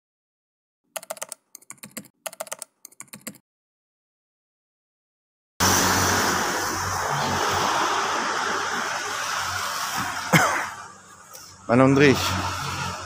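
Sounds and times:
rushing street ambience: 5.6 - 13.0.

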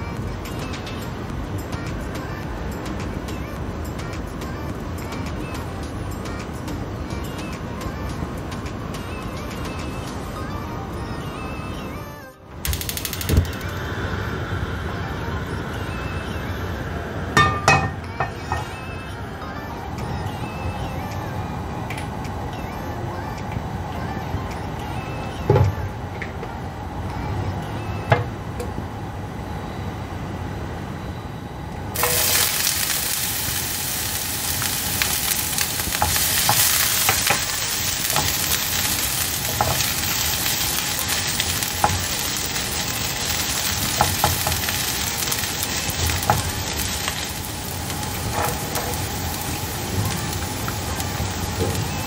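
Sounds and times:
ginger sizzling in hot oil: 32.0 - 52.0.

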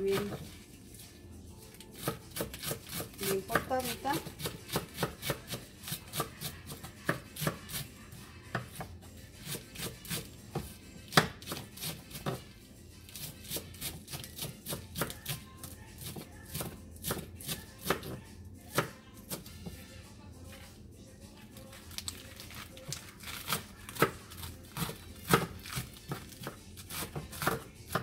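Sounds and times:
knife chopping on plastic cutting board: 2.0 - 7.9, 8.5 - 12.5, 13.2 - 15.4, 16.0 - 19.8, 23.4 - 28.0.

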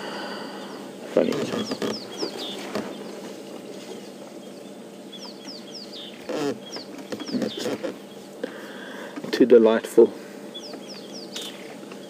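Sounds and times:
bird chirping: 0.4 - 8.5, 10.4 - 12.0.

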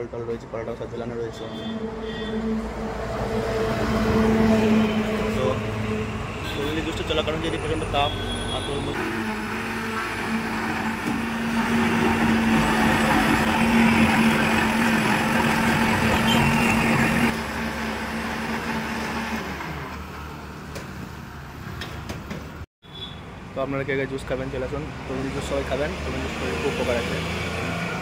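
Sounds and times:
blender motor running: 9.0 - 20.0.

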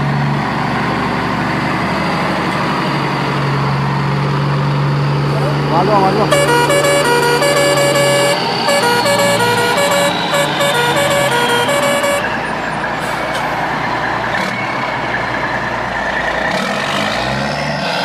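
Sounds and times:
truck engine rumble: 0.0 - 17.4
truck horn playing a tune: 6.2 - 12.4.

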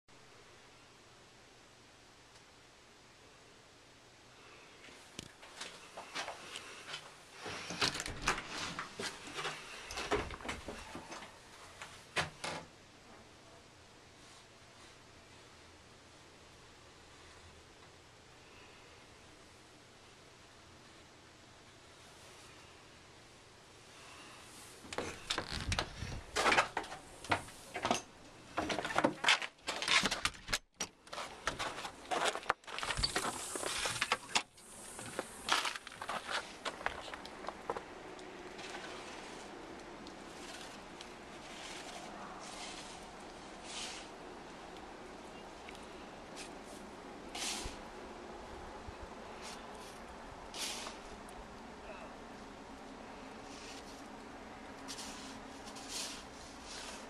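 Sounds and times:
handling noise: 24.8 - 45.2.

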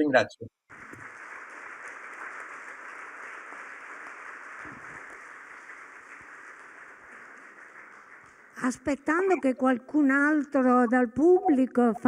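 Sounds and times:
audience applauding: 0.7 - 9.5.

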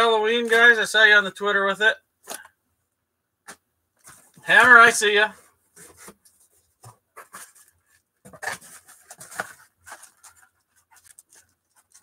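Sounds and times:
packaging rustling and clicking: 5.8 - 12.0.

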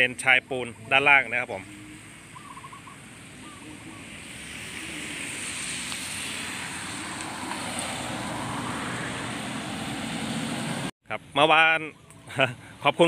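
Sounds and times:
tyres hissing on wet road: 3.1 - 10.9.

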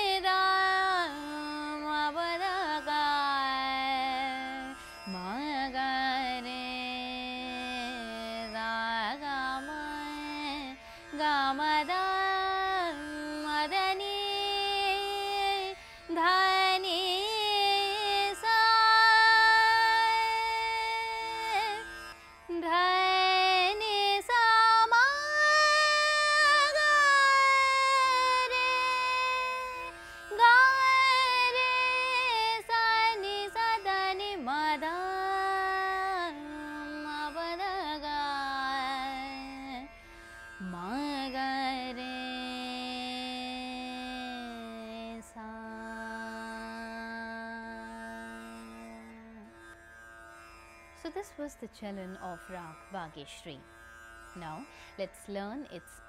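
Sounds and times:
woman singing wordless classical vocal: 0.0 - 49.5, 51.0 - 53.7, 54.4 - 56.0
plucked tanpura drone: 0.0 - 56.0.

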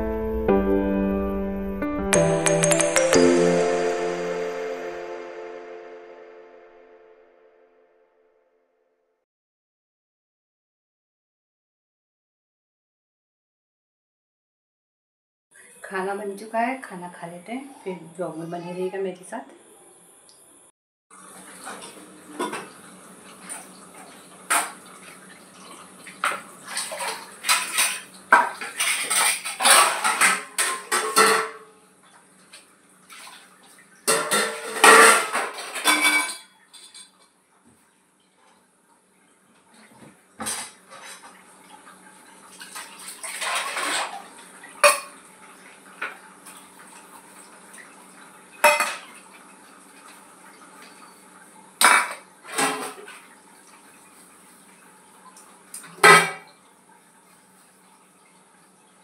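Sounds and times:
metal dishes clinking in sink: 26.2 - 31.7, 34.1 - 37.3, 42.7 - 45.2, 48.6 - 49.2, 51.8 - 53.2, 55.8 - 56.5.

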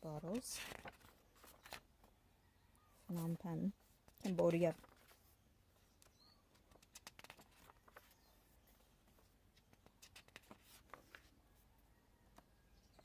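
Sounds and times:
pages being turned: 0.3 - 1.9, 4.1 - 5.3, 6.0 - 11.3.

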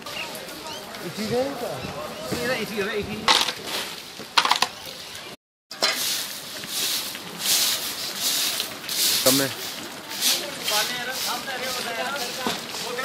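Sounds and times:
hand tool scraping wet slush: 5.9 - 13.0.

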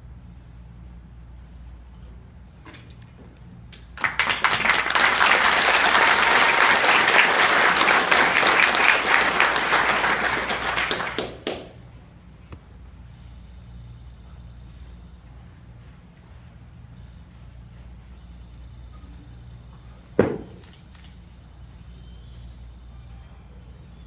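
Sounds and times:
audience applauding: 4.0 - 11.8.

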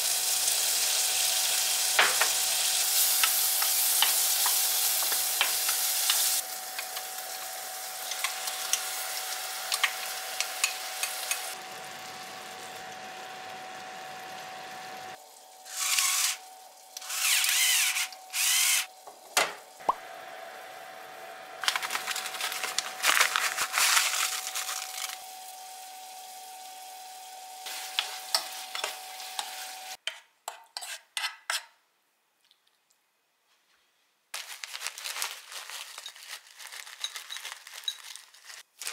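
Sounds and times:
food sizzling in a frying pan: 0.0 - 17.0, 20.0 - 30.0
induction hob whine: 6.4 - 15.6, 18.7 - 23.4, 24.2 - 30.0
electric pepper mill grinding: 21.6 - 25.3.

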